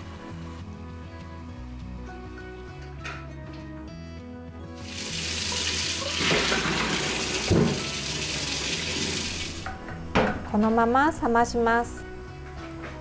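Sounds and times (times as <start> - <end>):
water pouring through strainer: 4.8 - 9.6
water splash: 4.8 - 9.6
running tap: 4.8 - 9.7.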